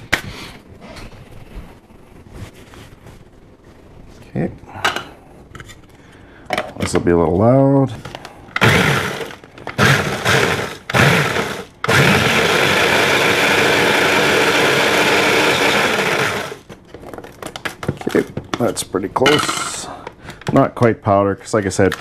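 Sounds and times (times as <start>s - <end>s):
food processor grinding chips: 8.6s - 16.7s.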